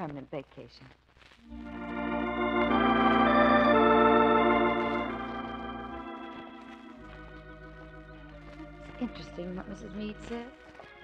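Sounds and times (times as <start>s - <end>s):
sustained music chords: 1.5s - 10.3s.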